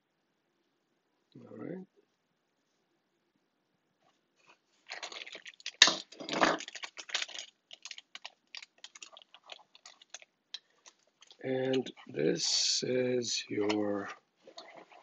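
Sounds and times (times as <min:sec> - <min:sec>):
plastic bag crinkling: 0:04.4 - 0:12.2, 0:13.6 - 0:15.0.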